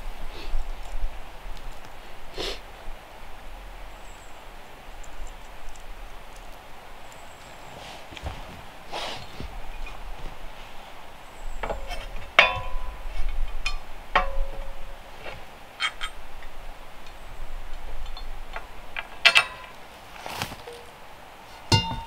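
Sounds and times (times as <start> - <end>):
steel parts clinking together: 11.6 - 15.0, 15.8 - 17.2, 18.0 - 19.8, 21.7 - 22.0.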